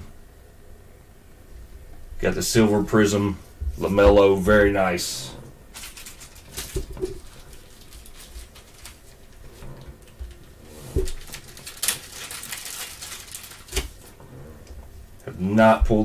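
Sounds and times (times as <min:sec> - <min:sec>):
card rustle: 0:05.7 - 0:14.2.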